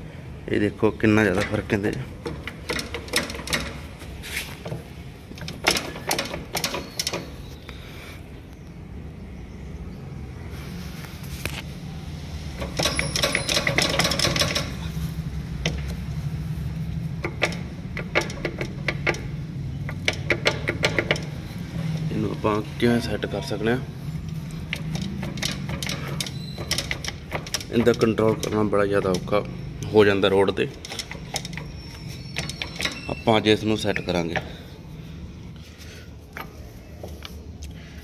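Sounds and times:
metallic clicks and knocks: 0:01.2 - 0:04.0, 0:04.6 - 0:07.4, 0:12.6 - 0:14.9, 0:15.6 - 0:16.1, 0:17.2 - 0:22.1, 0:24.2 - 0:29.9, 0:30.5 - 0:33.3
diesel tractor engine idling: 0:12.2 - 0:38.0.

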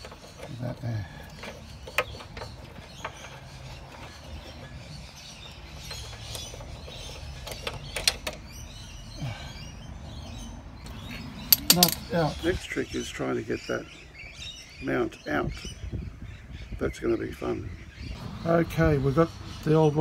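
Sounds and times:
socket wrench metallic clicks: 0:11.5 - 0:12.0.

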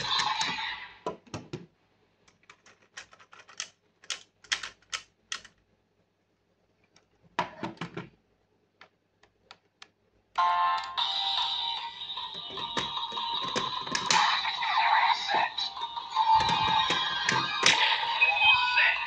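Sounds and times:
toy electronic sound effects and music: 0:00.0 - 0:00.8, 0:10.4 - 0:19.0.

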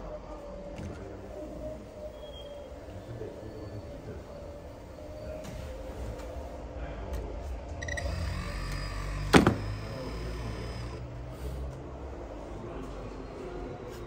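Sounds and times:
steady low hum: 0:00.0 - 0:13.7
electric motors whining: 0:07.8 - 0:11.2.

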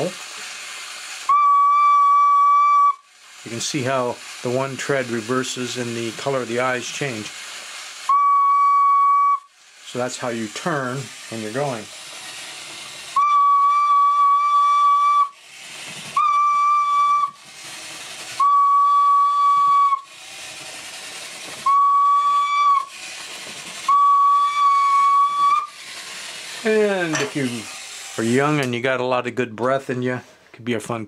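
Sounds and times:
toy gear motor and treads: 0:00.0 - 0:29.8
hand whistle blasts: 0:01.2 - 0:03.1, 0:08.1 - 0:09.5, 0:13.2 - 0:15.4, 0:16.2 - 0:17.4, 0:18.4 - 0:20.1, 0:21.6 - 0:22.9, 0:23.9 - 0:25.8.

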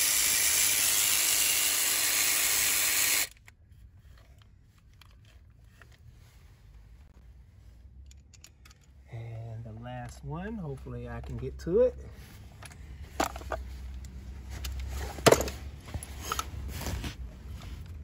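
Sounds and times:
power ratchet running: 0:00.0 - 0:03.3.

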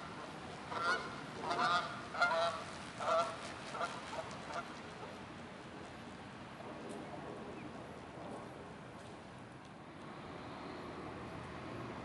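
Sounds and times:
geese honking: 0:00.7 - 0:03.3.

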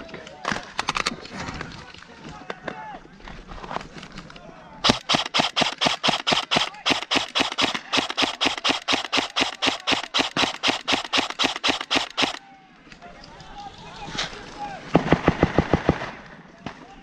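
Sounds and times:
airsoft rifle rapid shots: 0:04.8 - 0:12.4.

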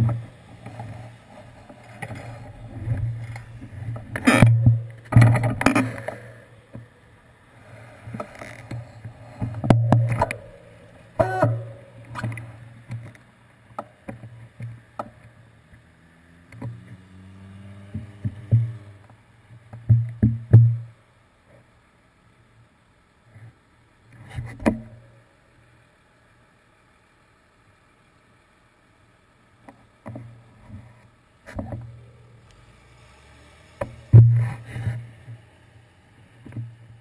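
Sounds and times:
muffled road traffic rumble: 0:00.0 - 0:37.0
vehicle engine pulling away: 0:15.5 - 0:19.2, 0:32.2 - 0:37.0.

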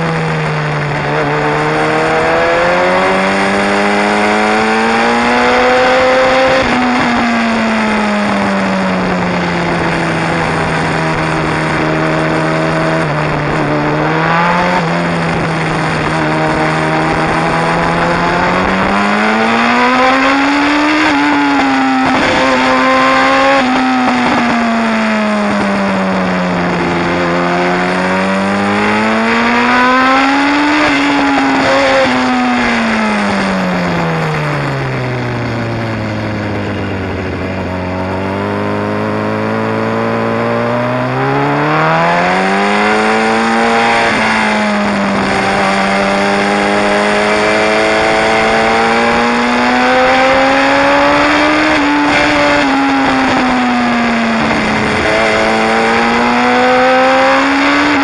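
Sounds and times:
motorcycle engine revving: 0:00.0 - 0:58.0
wind rush: 0:05.6 - 0:39.9.

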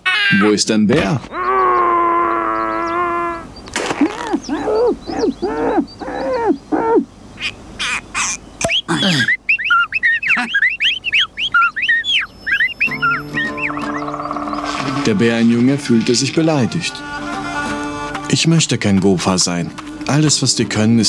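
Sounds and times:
low hooting whistles: 0:08.6 - 0:15.1.

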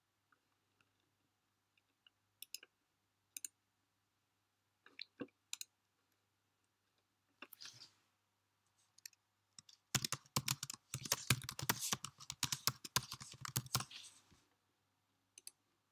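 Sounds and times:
typing on a computer keyboard: 0:09.0 - 0:14.1.

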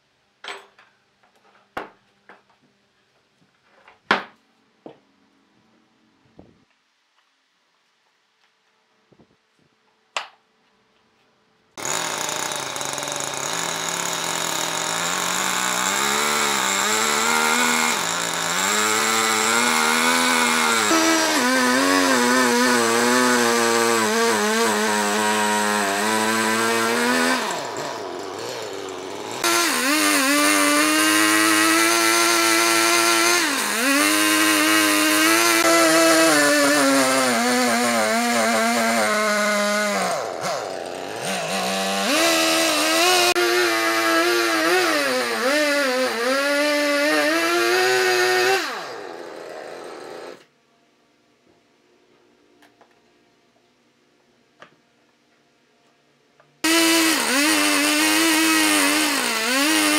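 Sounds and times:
chainsaw cutting a log: 0:11.8 - 0:50.5, 0:56.6 - 0:59.9.

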